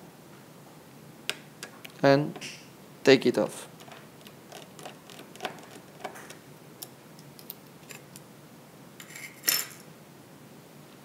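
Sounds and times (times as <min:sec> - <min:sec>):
small part clattering: 0:09.0 - 0:09.9.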